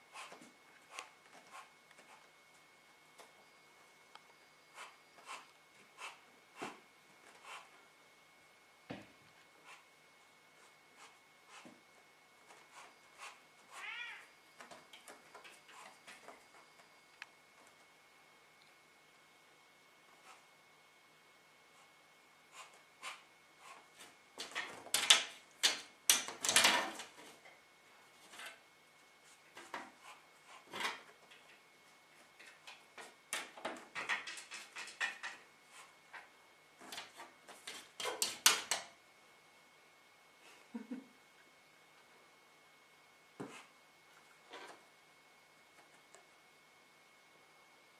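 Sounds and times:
faint clicks and scratches: 0.0s - 3.4s, 4.1s - 7.9s, 9.3s - 17.9s, 29.2s - 38.9s
cat meowing: 13.7s - 14.3s
animals scrabbling in cage: 32.4s - 35.5s.

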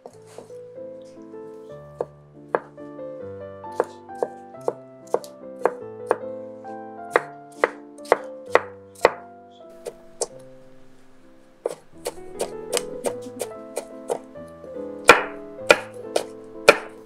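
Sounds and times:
knife strikes on wooden board: 2.0s - 2.8s, 3.7s - 6.2s, 7.1s - 9.2s, 11.6s - 14.3s, 15.0s - 17.0s.

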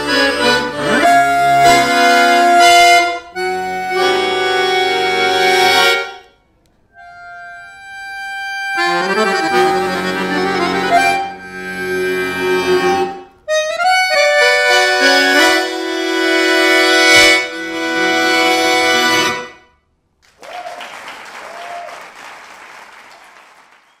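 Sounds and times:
accordion playing a tango: 0.0s - 19.7s
applause: 20.2s - 24.0s.

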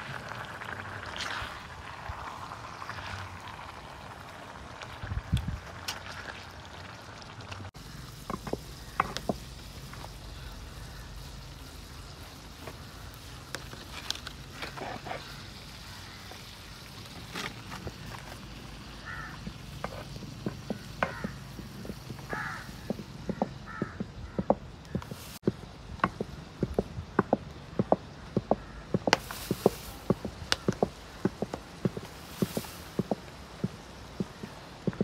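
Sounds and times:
utensils tapping cooking pot: 8.2s - 9.5s
spatula scraping frying pan: 14.5s - 15.4s.

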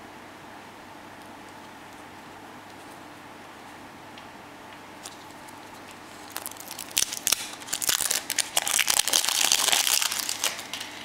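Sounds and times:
plastic wrapper crinkling: 5.0s - 11.0s.

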